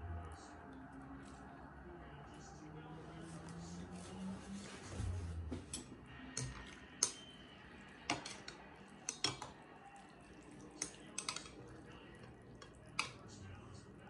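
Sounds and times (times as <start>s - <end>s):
metal utensils clinking against bowl: 5.6s - 7.3s, 8.0s - 9.6s, 10.3s - 13.4s.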